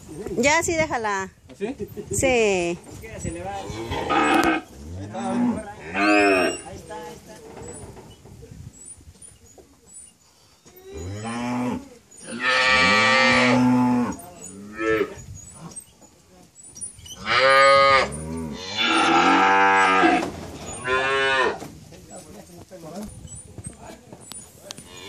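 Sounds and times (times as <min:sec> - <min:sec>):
cow bellowing: 0:03.6 - 0:06.7, 0:10.8 - 0:15.8, 0:17.2 - 0:21.6.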